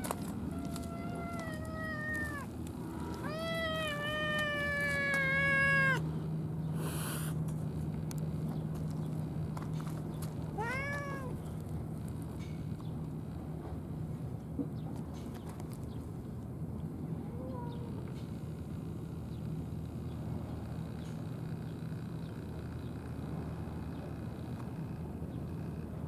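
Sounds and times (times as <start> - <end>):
cat meowing: 0.0 - 6.0, 10.6 - 11.4.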